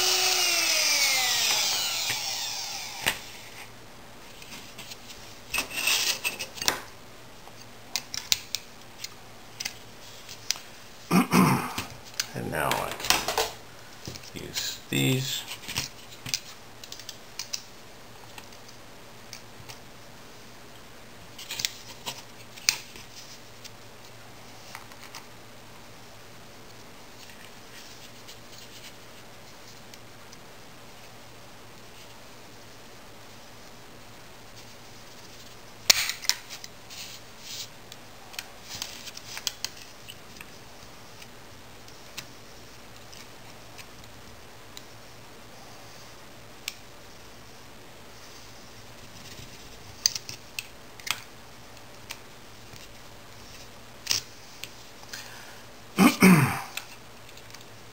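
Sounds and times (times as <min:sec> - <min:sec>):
small clicks and scrapes: 0:34.6 - 0:44.9, 0:48.2 - 0:55.2.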